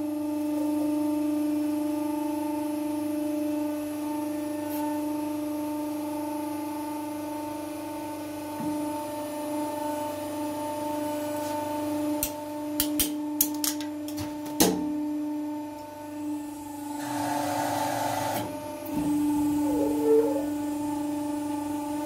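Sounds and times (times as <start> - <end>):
hydraulic press motor humming: 14.3 - 22.0.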